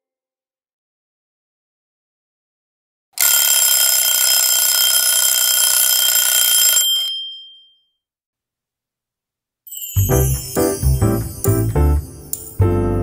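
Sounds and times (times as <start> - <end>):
alarm clock ringing: 3.2 - 7.7.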